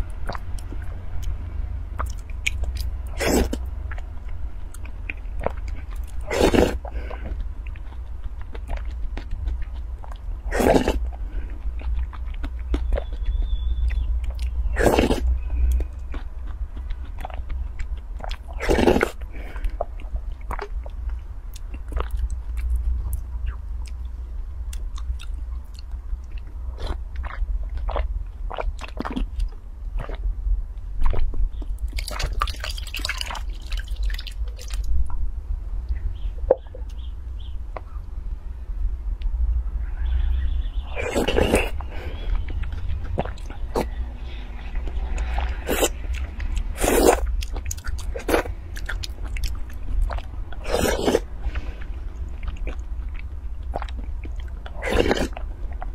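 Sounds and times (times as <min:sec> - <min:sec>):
person slurping and chewing: 0:02.0 - 0:04.0, 0:05.4 - 0:17.5, 0:18.2 - 0:20.7, 0:40.9 - 0:55.9.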